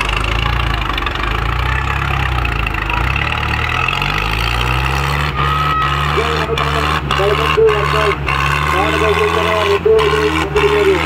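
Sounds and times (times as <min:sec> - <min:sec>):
diesel engines labouring: 0:00.0 - 0:11.0.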